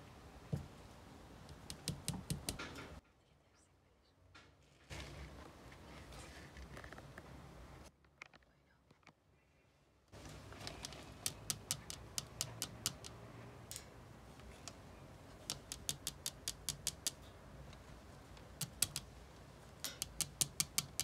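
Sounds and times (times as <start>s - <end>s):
fingernails tapping metal grille: 1.5s - 3.0s, 10.2s - 17.4s, 18.4s - 19.1s, 19.8s - 21.0s.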